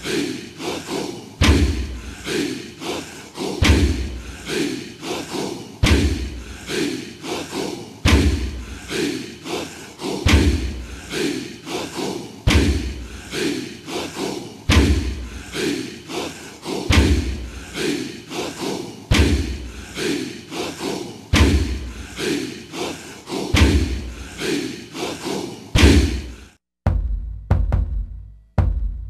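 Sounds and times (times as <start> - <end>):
deep heavy drum hits: 26.9 - 28.9.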